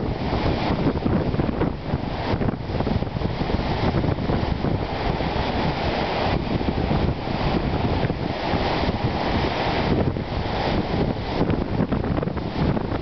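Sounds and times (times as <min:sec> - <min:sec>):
waves breaking on rocky shore: 0:00.0 - 0:13.0
wind buffeting microphone: 0:00.0 - 0:13.0.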